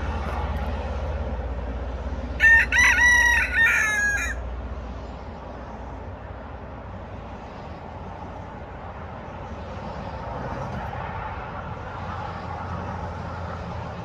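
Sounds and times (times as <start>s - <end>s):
steady low rumble: 0.0s - 2.8s
rooster crowing: 2.4s - 4.5s.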